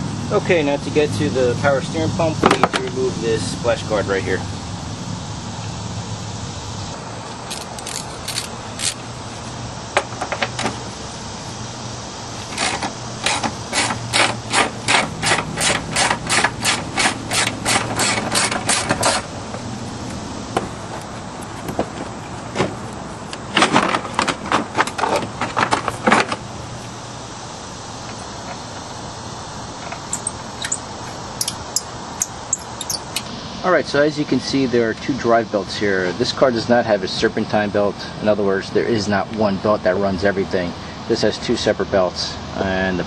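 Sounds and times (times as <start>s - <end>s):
ratchet wrench clicking: 7.5s - 9.0s, 29.9s - 30.8s, 31.4s - 33.3s.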